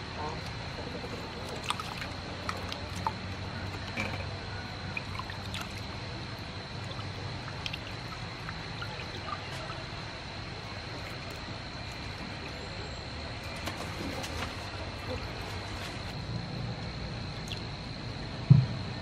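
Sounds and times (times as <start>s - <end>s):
hands sloshing water in a bowl: 1.0s - 10.0s.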